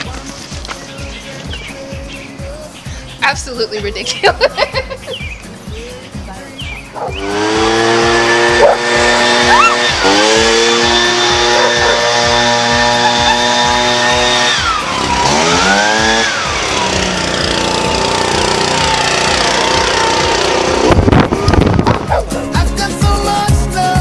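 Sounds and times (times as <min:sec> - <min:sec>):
leaf blower engine running: 0:06.6 - 0:22.6.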